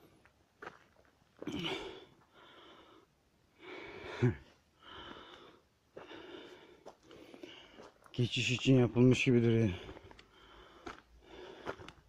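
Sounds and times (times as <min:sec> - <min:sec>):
person breathing heavily: 0:01.4 - 0:08.0, 0:09.6 - 0:12.0.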